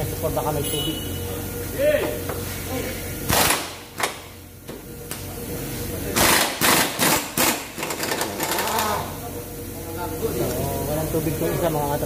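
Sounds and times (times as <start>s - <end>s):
pneumatic impact wrench hammering: 3.2s - 4.4s, 6.1s - 9.1s.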